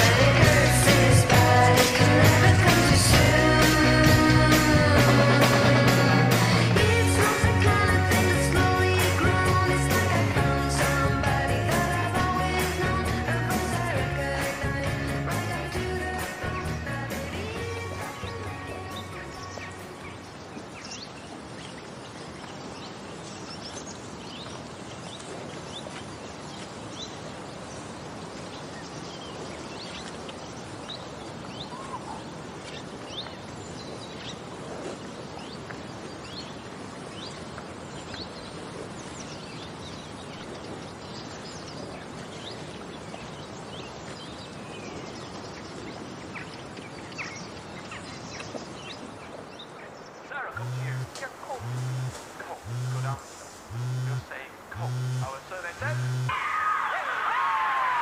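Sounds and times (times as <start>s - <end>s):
birds chirping: 0.0s - 58.0s
steady background noise: 50.0s - 58.0s.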